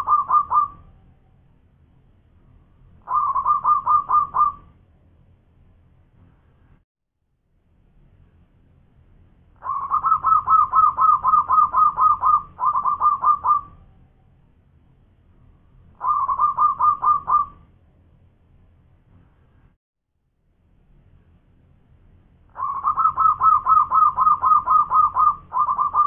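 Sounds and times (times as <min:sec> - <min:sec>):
dove staccato cooing: 0:00.0 - 0:00.8, 0:03.1 - 0:04.7, 0:09.6 - 0:13.8, 0:16.0 - 0:17.6, 0:22.5 - 0:26.0.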